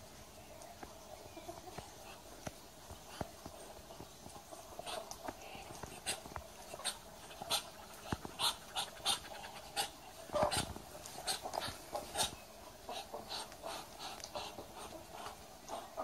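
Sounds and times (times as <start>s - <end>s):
ducks hissing: 4.6s - 16.0s.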